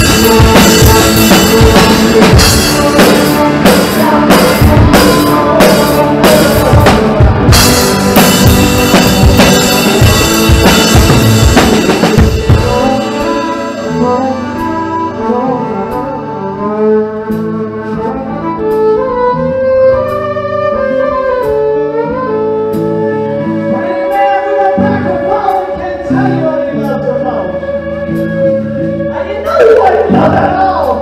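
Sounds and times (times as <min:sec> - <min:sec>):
drum kit: 0:00.0 - 0:31.0
held electric guitar notes: 0:00.0 - 0:31.0.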